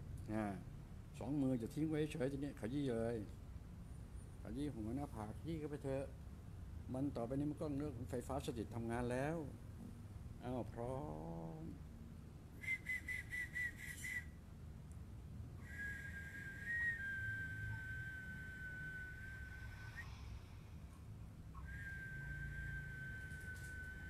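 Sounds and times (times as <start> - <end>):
person whistling: 12.6 - 14.4, 15.6 - 20.5, 21.6 - 24.0.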